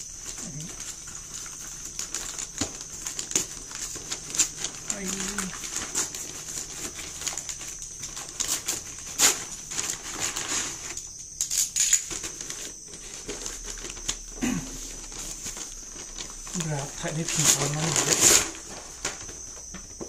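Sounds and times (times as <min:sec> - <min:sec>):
paper bag rustling and crackling: 0:00.0 - 0:11.2, 0:11.8 - 0:20.0
paper tearing: 0:16.6 - 0:18.7.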